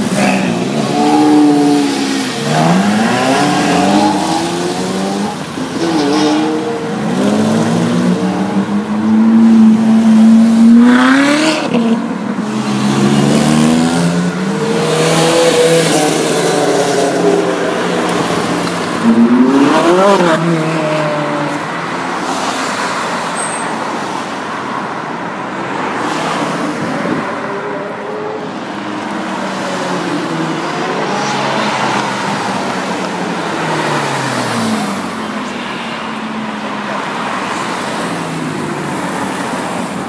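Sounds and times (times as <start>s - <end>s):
sports car engines revving past: 0.0s - 23.0s.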